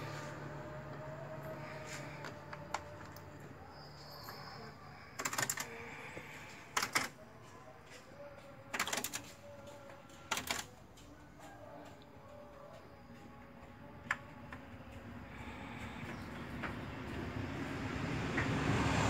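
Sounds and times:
rapid rattling clicks: 8.7 - 11.1.

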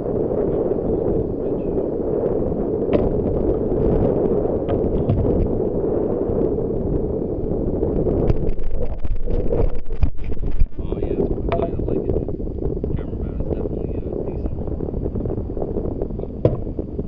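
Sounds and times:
wind buffeting microphone: 0.0 - 17.0
waves lapping against hull: 8.2 - 12.8.

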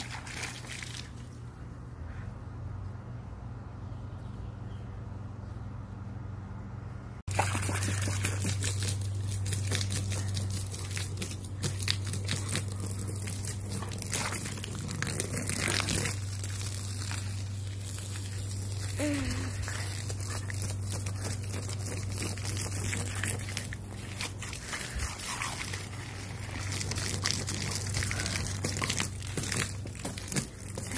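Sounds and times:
hose water splashing on deck: 0.0 - 1.4, 7.3 - 30.9
dog biting at water: 7.3 - 19.0, 19.6 - 30.9.

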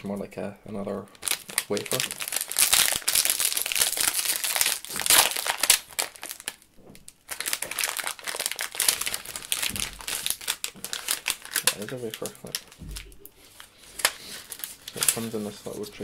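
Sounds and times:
plastic packaging crinkling: 1.1 - 16.0.

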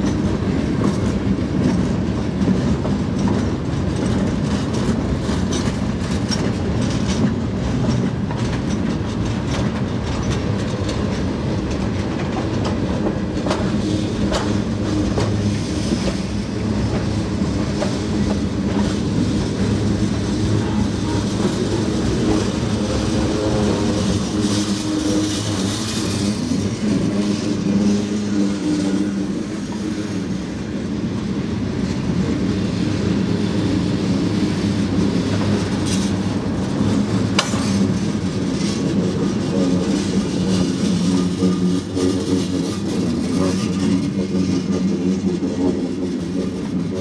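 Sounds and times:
freight train rumbling past: 0.0 - 47.0
train wheels clicking over rail joints: 0.0 - 47.0
sharp clacks: 37.3 - 38.1.

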